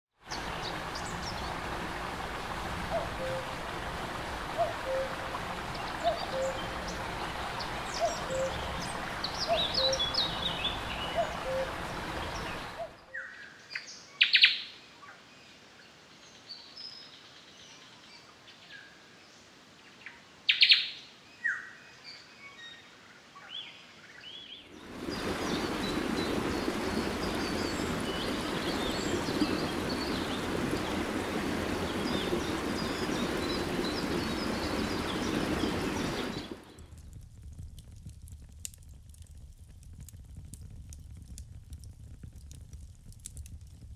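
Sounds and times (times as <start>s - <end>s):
small birds chirping: 4.8s - 14.6s, 24.3s - 36.9s
steady rushing noise: 24.7s - 36.8s.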